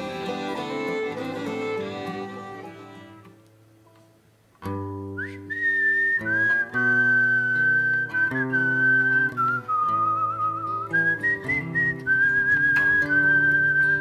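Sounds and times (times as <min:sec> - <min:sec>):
acoustic guitar strummed: 0:00.0 - 0:03.4, 0:04.6 - 0:14.0
person whistling a melody: 0:05.1 - 0:14.0.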